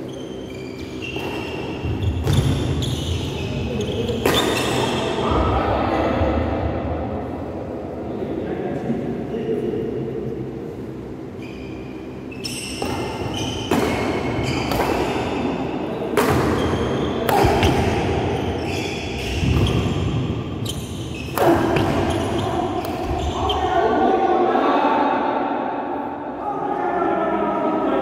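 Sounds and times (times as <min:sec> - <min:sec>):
racket hitting shuttlecock: 0:12.8 - 0:15.4, 0:16.1 - 0:18.2, 0:21.3 - 0:22.2.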